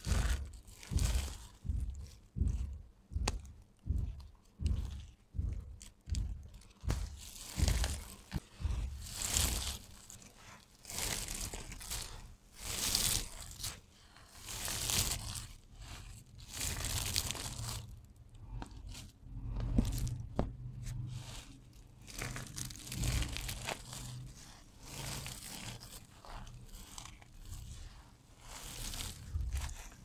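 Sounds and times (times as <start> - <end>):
soap strips crunching: 5.7 - 18.9, 19.6 - 30.0.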